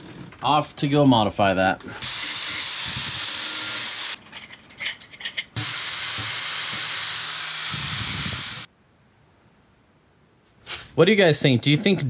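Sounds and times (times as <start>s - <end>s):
angle grinder grinding steel: 2.0s - 4.2s, 5.6s - 8.7s.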